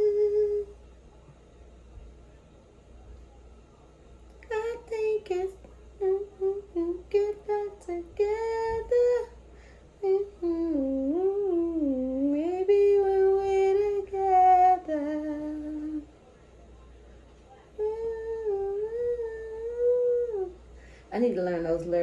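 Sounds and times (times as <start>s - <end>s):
woman humming a wordless melody: 0.0s - 0.8s, 4.4s - 9.4s, 10.0s - 16.1s, 17.7s - 20.6s.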